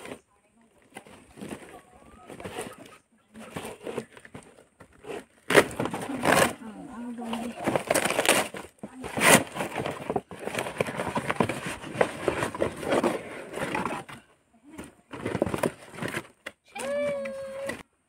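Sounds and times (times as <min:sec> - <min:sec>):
cardboard packaging crackling: 0:00.8 - 0:14.2
cardboard ripping: 0:01.0 - 0:14.1.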